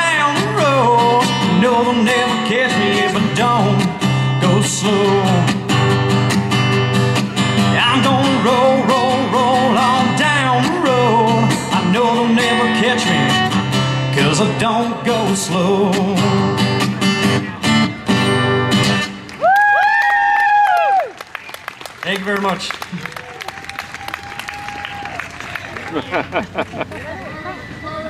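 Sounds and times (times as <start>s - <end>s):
man singing: 0.0s - 6.0s, 7.6s - 17.1s
acoustic guitar strumming: 0.0s - 19.4s.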